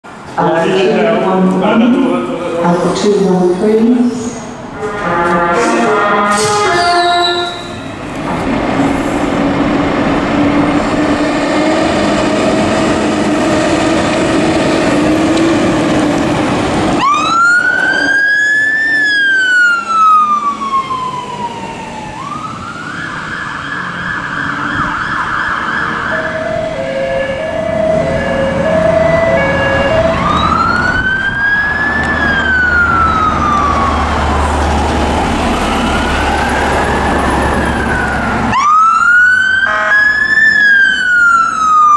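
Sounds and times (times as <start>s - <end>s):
fire engine siren wailing: 2.2s - 41.9s
two-note siren: 4.8s - 8.0s, 17.0s - 34.6s, 35.3s - 41.9s
diesel truck engine rumble: 7.9s - 39.4s
warbling siren tone: 17.0s - 41.9s.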